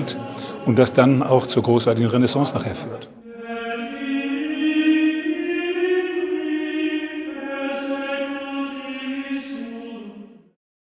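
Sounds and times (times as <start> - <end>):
slow chant-like singing: 3.2 - 10.6.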